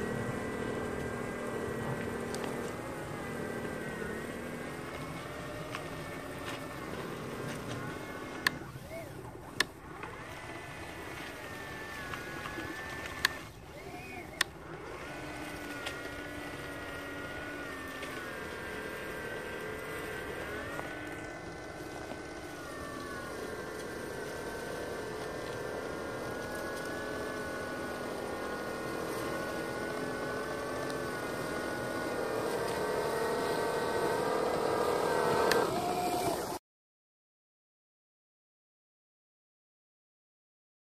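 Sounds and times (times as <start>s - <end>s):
snow blower motor whining: 0.0s - 36.6s.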